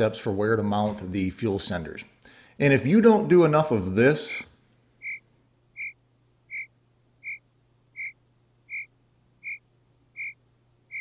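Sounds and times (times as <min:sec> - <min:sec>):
faint steady hum: 0:00.0 - 0:11.0
high-pitched electronic beeps: 0:05.0 - 0:05.2, 0:05.8 - 0:07.4, 0:08.0 - 0:09.6, 0:10.2 - 0:11.0.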